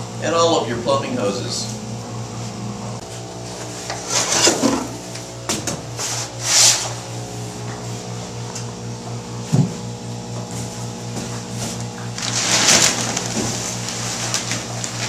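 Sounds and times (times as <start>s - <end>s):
low pulsing hum: 0.0s - 15.0s
pot scraping against cardboard: 6.0s - 7.0s.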